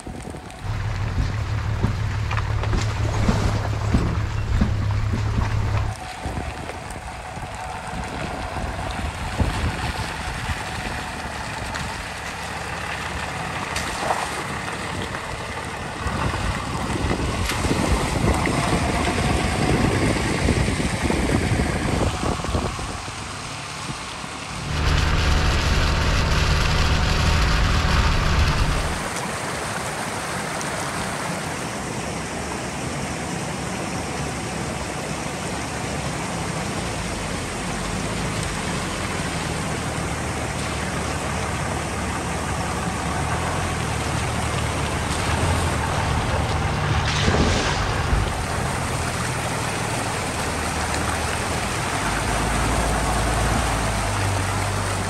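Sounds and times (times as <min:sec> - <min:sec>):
truck engine running: 0:00.0 - 0:29.7, 0:33.6 - 0:55.0
tyres splashing through puddles: 0:00.0 - 0:55.0.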